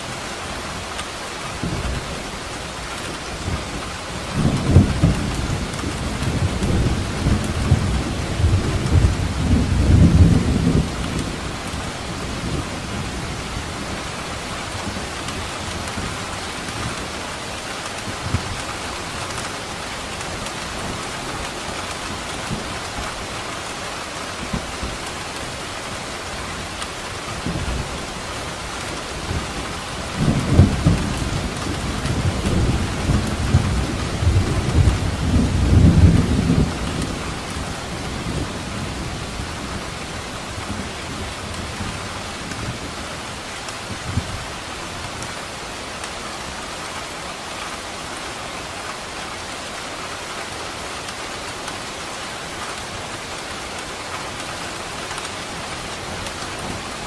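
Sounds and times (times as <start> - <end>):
steady rain: 0.0 - 57.0
thunder rumbling: 27.3 - 43.0.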